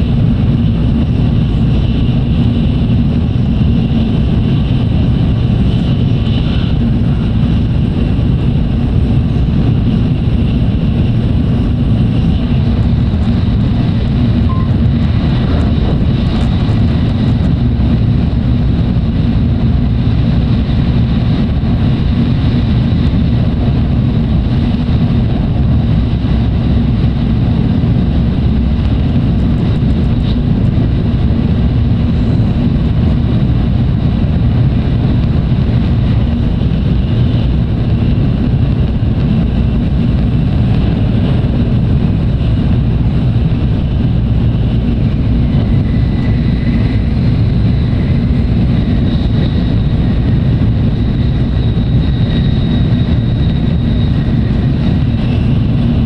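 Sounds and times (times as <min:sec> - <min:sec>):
train low rumble: 0:00.0 - 0:56.0
faint high whine: 0:14.4 - 0:15.6.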